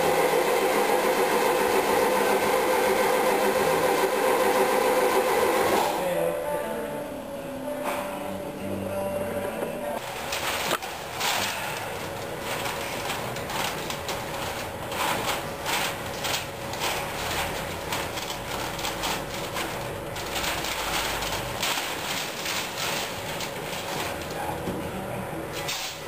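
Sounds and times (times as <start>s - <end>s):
paper rustling and crinkling: 10.0s - 24.6s.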